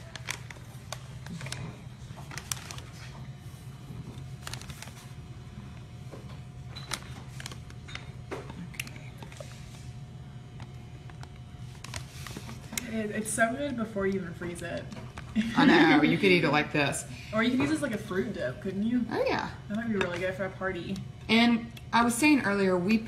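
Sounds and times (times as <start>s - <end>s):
plastic bag crinkling: 0.0s - 3.2s, 3.9s - 5.3s, 6.8s - 9.9s, 10.6s - 12.9s
steady low hum: 0.0s - 23.0s.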